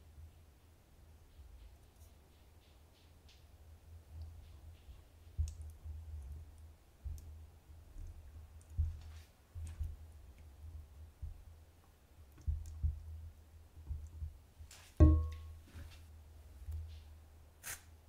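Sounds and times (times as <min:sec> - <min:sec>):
spatula knocking against pan: 0:15.0 - 0:15.5.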